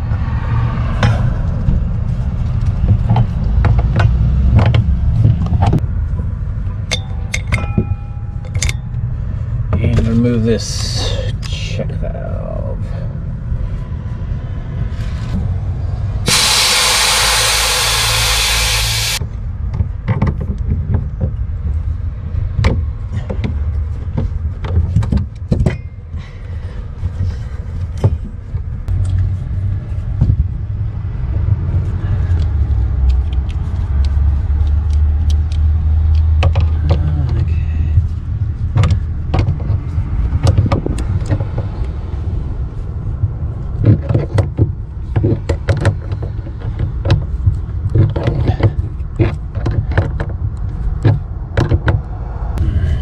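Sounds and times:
steady low rumble: 0:00.0 - 0:03.7, 0:04.4 - 0:20.0, 0:36.8 - 0:43.8, 0:50.4 - 0:53.0.

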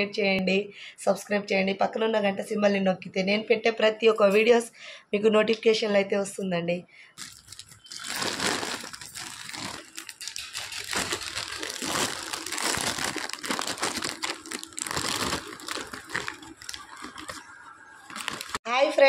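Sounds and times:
plastic packaging crinkling: 0:07.2 - 0:18.6.

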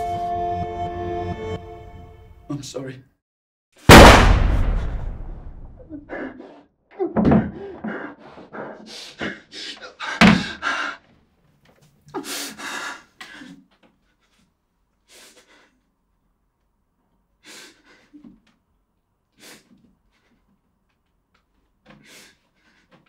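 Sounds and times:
man gasping and breathing hard: 0:07.3 - 0:11.1, 0:12.2 - 0:13.6.

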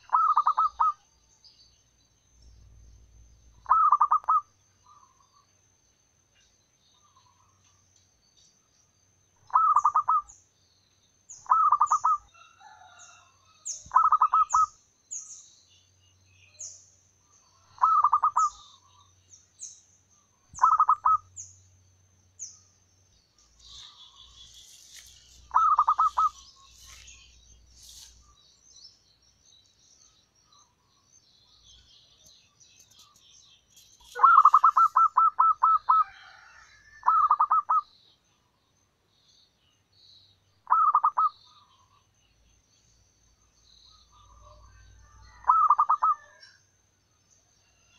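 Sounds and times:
dove cooing: 0:00.0 - 0:01.0, 0:03.6 - 0:04.5, 0:09.5 - 0:10.3, 0:17.7 - 0:18.6, 0:20.6 - 0:21.3, 0:25.5 - 0:26.5, 0:34.2 - 0:37.8, 0:40.7 - 0:41.3
small bird chirping: 0:00.0 - 0:05.6, 0:06.3 - 0:47.9.

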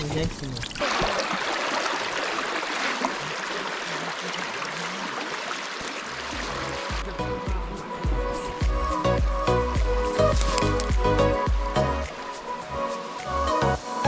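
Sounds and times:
stream rushing over rocks: 0:00.8 - 0:07.2
music: 0:06.4 - 0:14.0.

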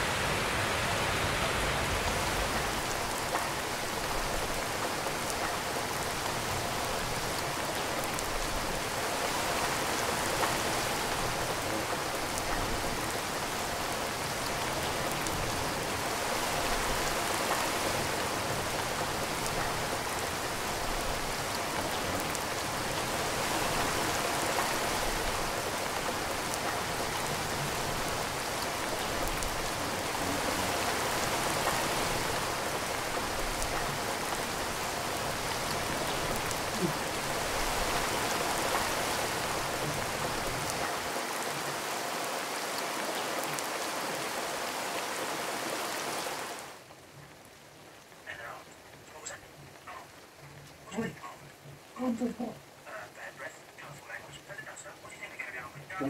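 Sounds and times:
steady rain: 0:00.0 - 0:56.0.

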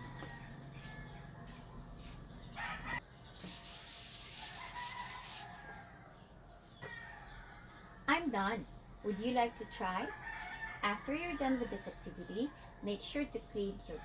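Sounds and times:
eraser rubbing chalkboard: 0:03.4 - 0:05.6.

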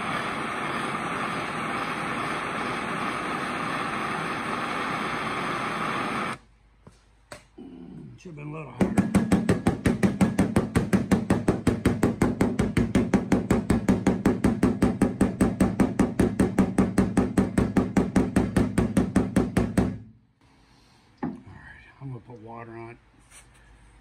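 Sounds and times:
hammer tapping sheet metal: 0:08.8 - 0:20.1.

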